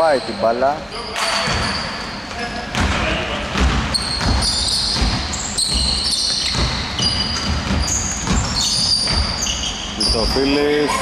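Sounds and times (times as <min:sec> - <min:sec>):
sneakers squeaking on floor: 0:00.0 - 0:11.0
basketball dribbling on hardwood: 0:02.7 - 0:10.4.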